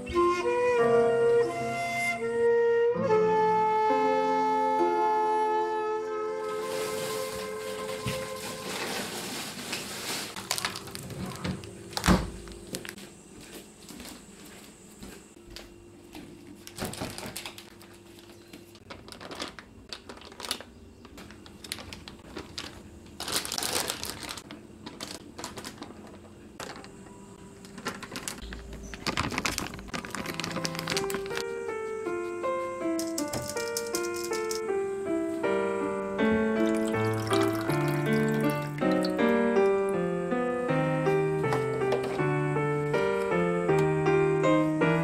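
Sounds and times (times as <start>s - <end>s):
plastic bags crinkling: 6.4s - 13.0s, 16.6s - 27.0s, 27.6s - 31.5s, 36.6s - 39.3s
kitchen things knocking: 33.0s - 34.7s.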